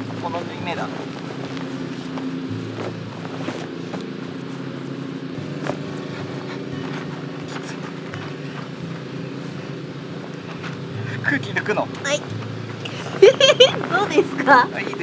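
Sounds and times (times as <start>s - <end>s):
tent fabric rustling: 0.0s - 9.8s
steady low hum: 0.0s - 15.0s.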